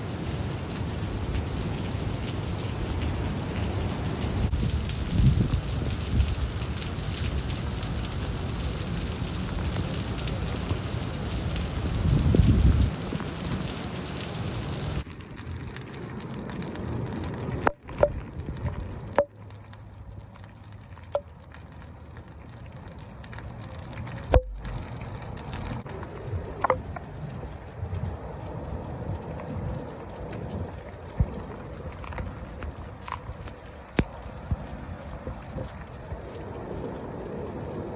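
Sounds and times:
wind gusting on microphone: 0.0s - 15.0s
heavy rain: 0.0s - 19.2s, 23.4s - 37.9s
rain pattering on wet pavement: 0.0s - 37.9s.

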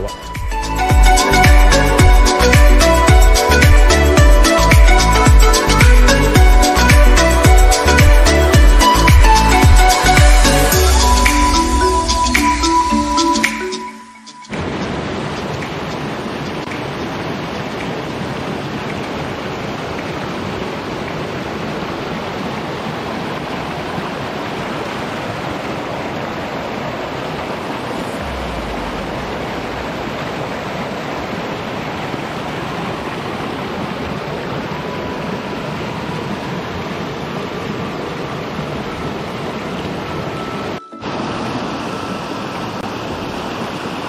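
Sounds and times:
stream rushing over boulders: 0.0s - 13.6s, 14.5s - 44.0s
low rumble: 28.0s - 30.6s.

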